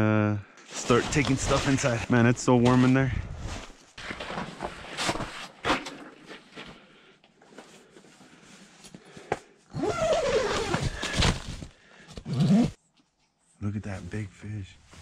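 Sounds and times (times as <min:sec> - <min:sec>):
rustling gear handling: 0:00.7 - 0:02.1, 0:09.7 - 0:12.8.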